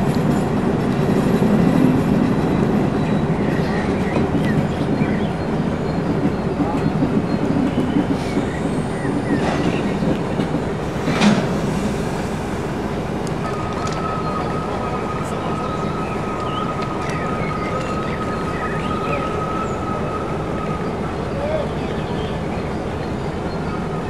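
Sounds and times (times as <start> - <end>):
railway wagon rolling: 0.0 - 24.0
steady high whine: 10.7 - 16.4.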